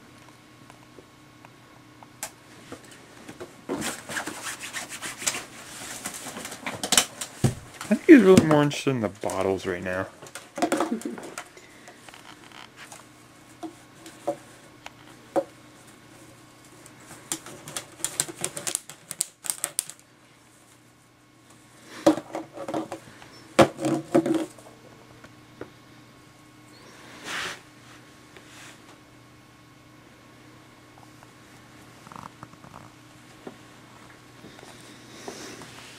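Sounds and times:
plastic bottles clattering: 0:10.2 - 0:11.5, 0:22.0 - 0:23.0, 0:23.6 - 0:24.6.

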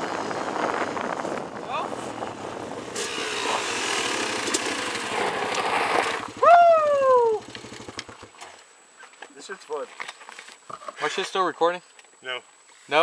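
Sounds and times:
off-road vehicle engine idling: 0:02.1 - 0:08.4
person whooping: 0:06.4 - 0:07.5.

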